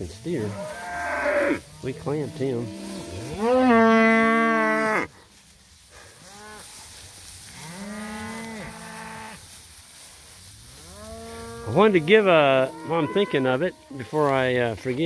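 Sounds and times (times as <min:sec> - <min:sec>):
cows mooing: 0:00.0 - 0:05.1, 0:10.8 - 0:14.0.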